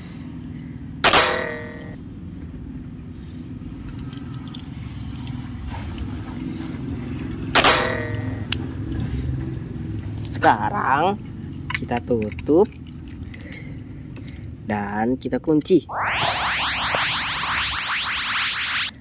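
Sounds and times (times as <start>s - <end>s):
loud metallic clangs: 1.0s - 1.9s.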